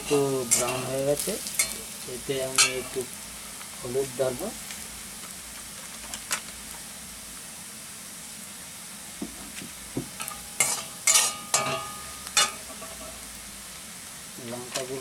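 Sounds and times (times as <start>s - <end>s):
food sizzling in oil: 0.0s - 15.0s
metal spatula scraping pan: 10.2s - 13.2s.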